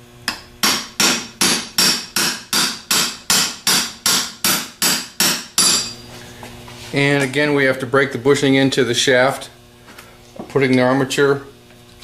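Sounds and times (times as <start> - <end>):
hammer ringing on metal: 0.3 - 6.0.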